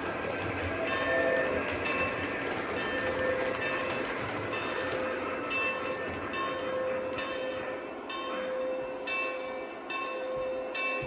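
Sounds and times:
model train wheels rumbling: 0.0 - 7.3.

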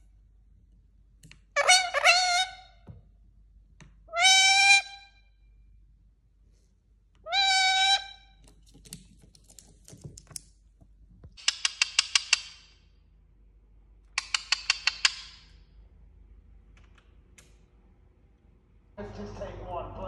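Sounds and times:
parakeet harsh calls: 1.6 - 2.8, 4.1 - 5.1, 7.3 - 8.2.

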